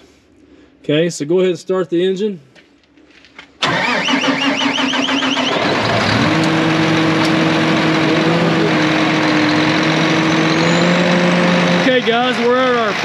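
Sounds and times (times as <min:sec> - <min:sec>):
diesel engine cranking and running: 0:03.6 - 0:13.0.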